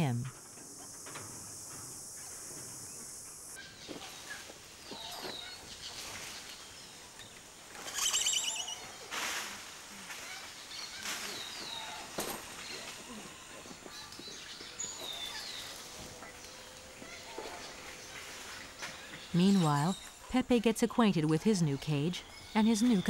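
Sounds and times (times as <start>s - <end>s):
birds calling: 3.4s - 9.2s.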